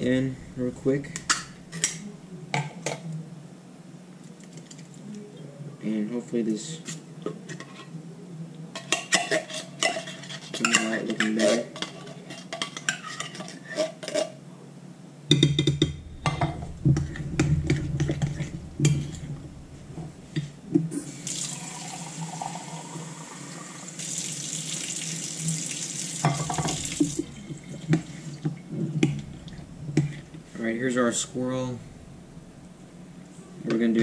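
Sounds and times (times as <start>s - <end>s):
kitchen tap running: 21.0s - 29.2s.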